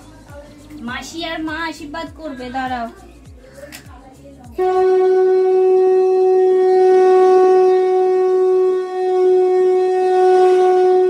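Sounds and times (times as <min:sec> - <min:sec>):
conch shell blown: 0:04.6 - 0:11.0.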